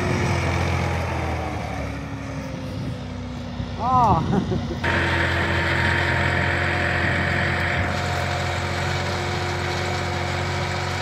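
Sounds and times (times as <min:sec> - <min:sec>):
tractor engine under load: 0:00.0 - 0:11.0.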